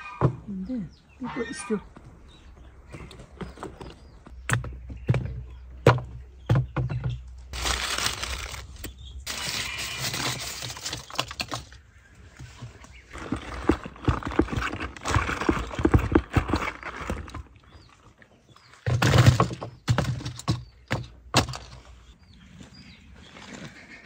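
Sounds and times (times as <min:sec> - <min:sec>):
rustling in straw basket: 0:07.5 - 0:11.4.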